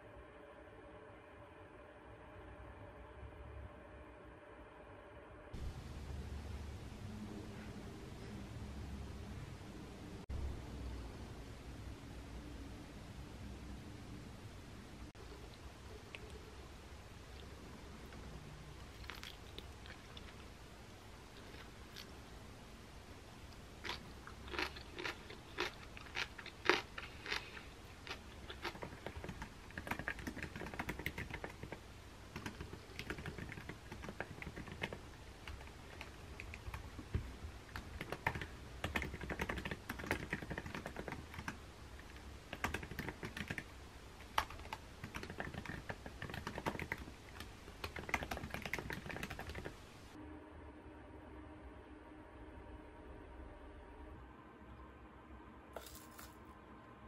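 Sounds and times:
faint steady hum: 0:00.0 - 0:57.0
chewing: 0:18.8 - 0:20.5, 0:23.5 - 0:31.6
typing on laptop keyboard: 0:28.6 - 0:43.7, 0:44.3 - 0:49.8.

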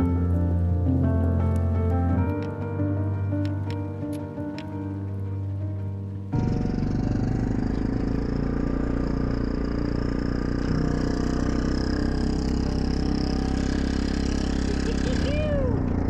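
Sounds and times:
small vehicle engine running: 0:06.3 - 0:16.0.

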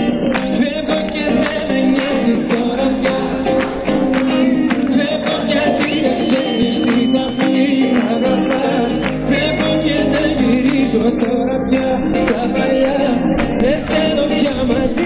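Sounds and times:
steady drum beat: 0:00.0 - 0:07.9
live band music: 0:00.0 - 0:15.0
man singing: 0:00.0 - 0:15.0.

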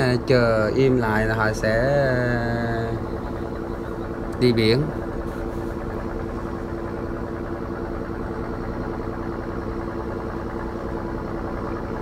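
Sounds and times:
boat engine humming: 0:00.0 - 0:12.0.

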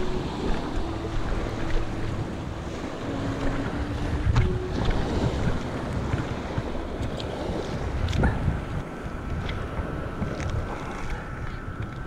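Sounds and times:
small waves on rocky shore: 0:00.0 - 0:12.0
wind buffeting microphone: 0:00.0 - 0:12.0.

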